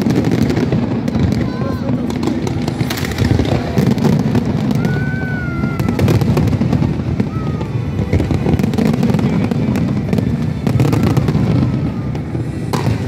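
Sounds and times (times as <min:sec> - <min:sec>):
firework whistle: 0:00.0 - 0:13.0
fireworks bangs and crackles: 0:00.0 - 0:13.0.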